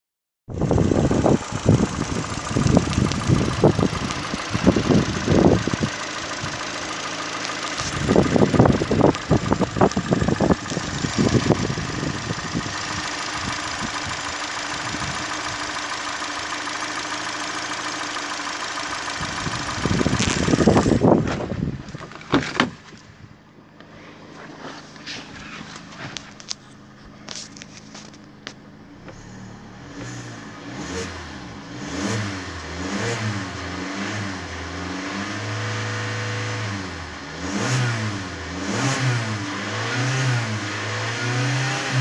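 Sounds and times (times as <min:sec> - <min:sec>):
car engine idling: 0:00.5 - 0:42.0
low rumbling on microphone: 0:19.2 - 0:23.4.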